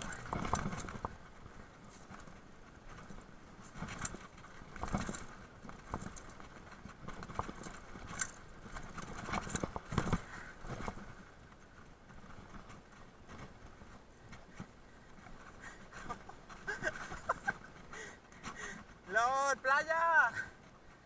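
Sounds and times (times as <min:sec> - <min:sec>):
bike tyres knocking over rocks: 0:00.0 - 0:01.2, 0:03.6 - 0:11.2.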